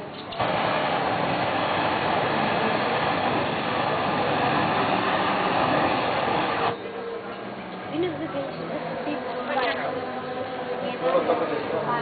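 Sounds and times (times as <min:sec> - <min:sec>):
hiss of burning spray: 0:00.0 - 0:06.8.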